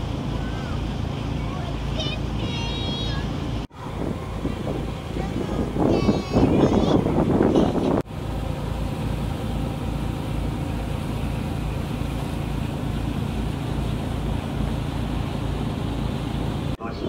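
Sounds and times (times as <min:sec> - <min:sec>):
boat engine humming: 0:00.0 - 0:17.0
wind and water hiss: 0:00.0 - 0:17.0.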